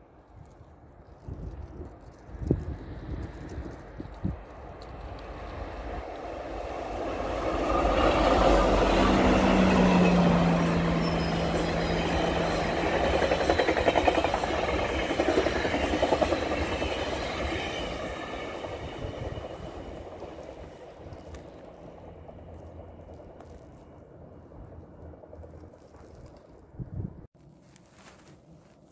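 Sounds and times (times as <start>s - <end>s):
diesel locomotive engine: 1.2s - 26.8s
wheels clattering on rail: 2.1s - 24.0s.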